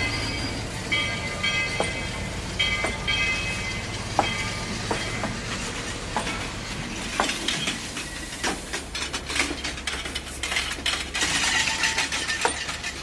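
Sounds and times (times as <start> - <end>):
train wheels clanking over rail joints: 0.0 - 13.0
metallic rattles: 6.2 - 13.0.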